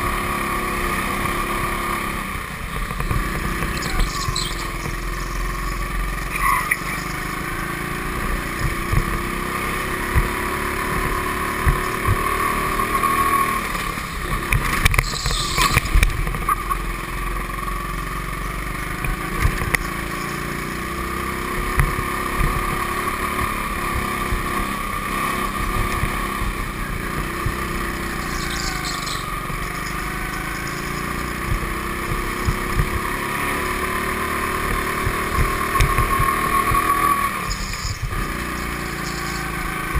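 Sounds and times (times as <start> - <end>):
go-kart engine running: 0.0 - 39.9
knocks and thumps: 8.6 - 9.3, 11.0 - 12.3, 21.6 - 22.8, 31.4 - 33.2, 34.6 - 36.8.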